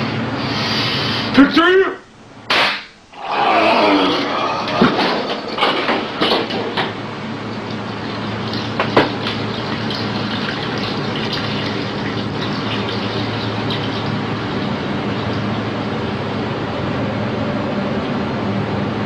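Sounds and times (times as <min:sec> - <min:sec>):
steady low hum: 0:00.0 - 0:19.0
ambient electronic noise texture: 0:03.0 - 0:19.0.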